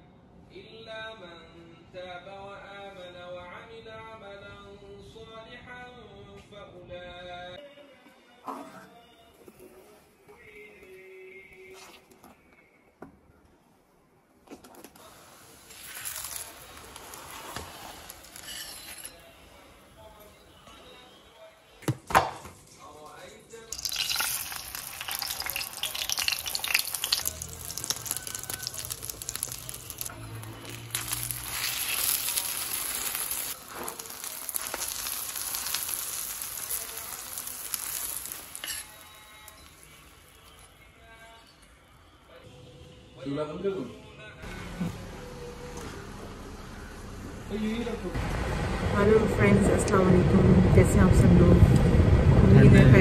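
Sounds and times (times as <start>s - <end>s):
oil sizzling on griddle: 15.0s - 19.4s, 23.7s - 40.7s
metal spatula scraping and tapping: 17.4s - 19.3s, 38.6s - 39.0s.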